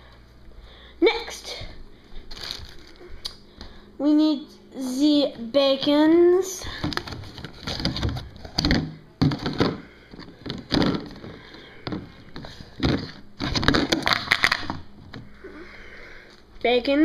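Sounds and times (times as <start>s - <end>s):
objects clattering: 6.7s - 15.3s.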